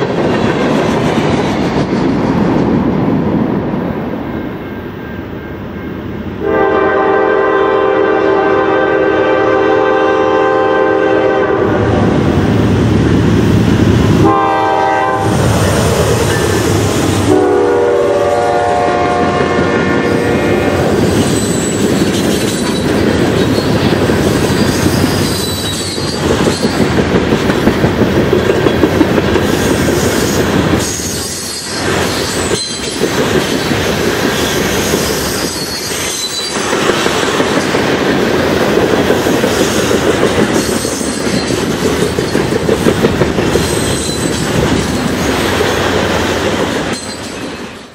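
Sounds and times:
rhythmic clicking over rail joints: 0.0s - 6.5s, 20.8s - 47.9s
train wheels rumbling on rail: 0.0s - 47.9s.

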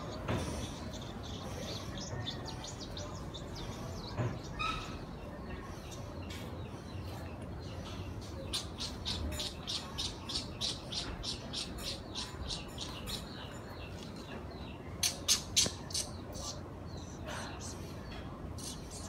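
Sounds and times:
small bird chirping: 7.8s - 19.0s.

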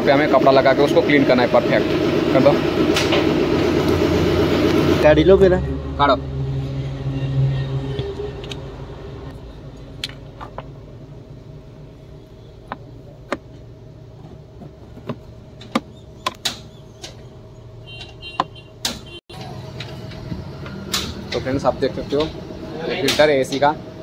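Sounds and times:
steady low hum: 0.0s - 18.4s.

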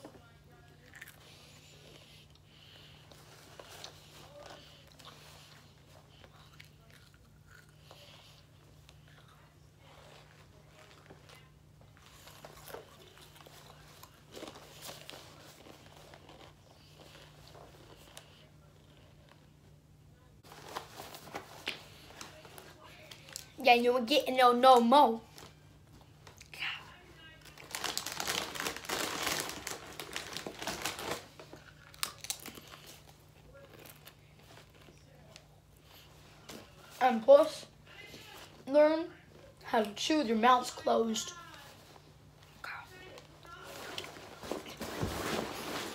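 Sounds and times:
chips being chewed: 6.2s - 8.4s, 15.6s - 18.1s, 27.5s - 35.0s
chip bag crinkling: 27.4s - 35.0s.

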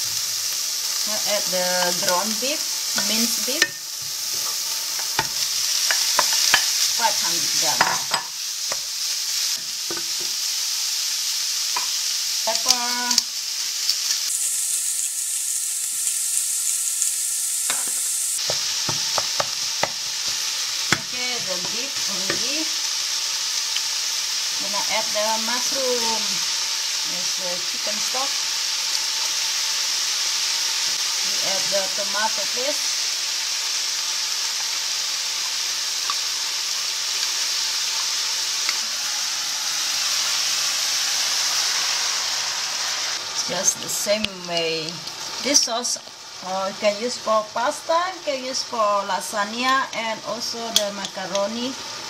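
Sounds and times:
meat sizzling in a frying pan: 0.0s - 52.0s
wooden spoon knocking on pan: 17.7s - 22.5s.

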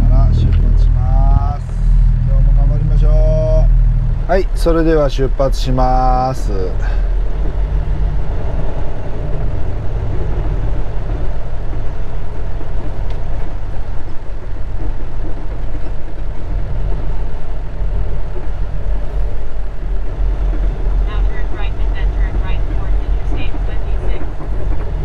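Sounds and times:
diesel truck engine rumble: 0.0s - 25.0s.

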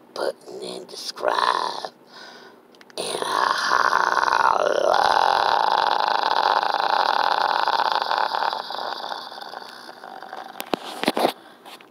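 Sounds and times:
man belching: 3.0s - 10.8s.

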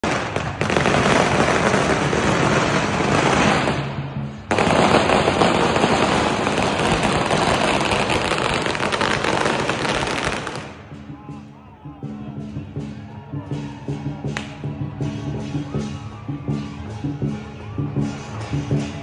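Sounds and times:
firecrackers crackling: 0.0s - 11.0s.

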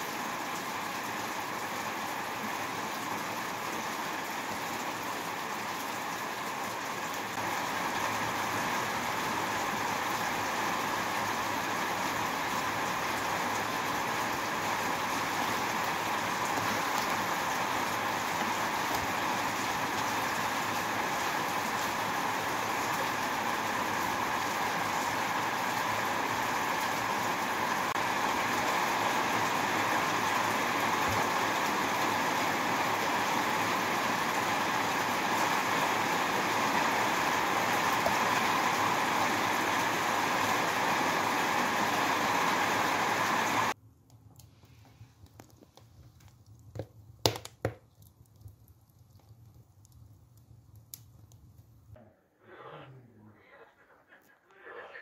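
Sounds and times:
wood fire snapping: 14.4s - 25.1s, 44.0s - 52.0s.

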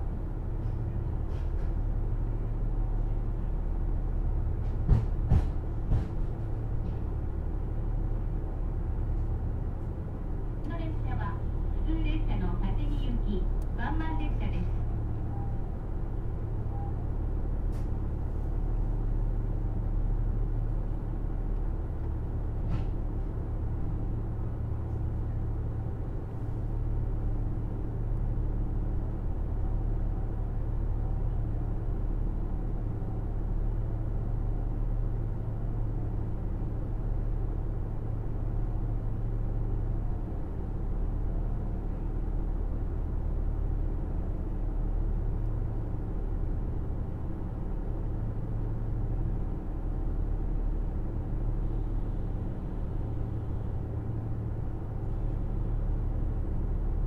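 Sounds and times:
diesel railcar drone: 0.0s - 57.0s.

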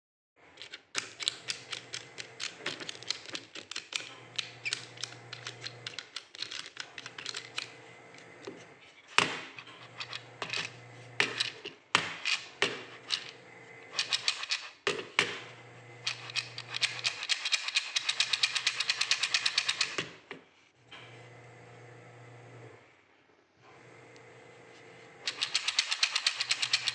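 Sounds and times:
wooden abacus beads clicking: 0.6s - 7.7s, 14.0s - 14.8s, 16.0s - 20.1s, 25.3s - 26.9s.

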